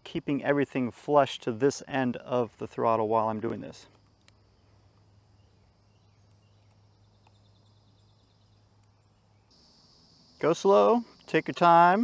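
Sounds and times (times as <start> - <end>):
faint insect buzz: 3.9 - 12.0.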